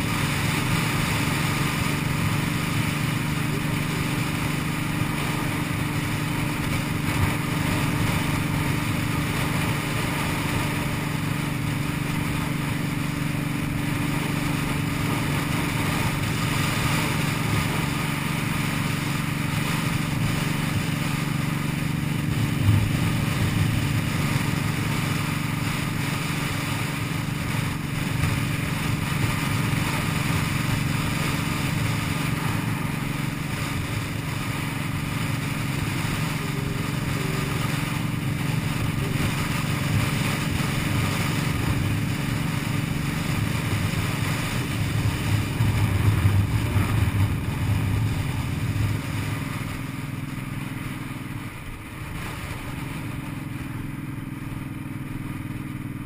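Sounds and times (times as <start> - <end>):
motorcycle engine running: 0.0 - 56.0
wind noise: 14.1 - 50.1.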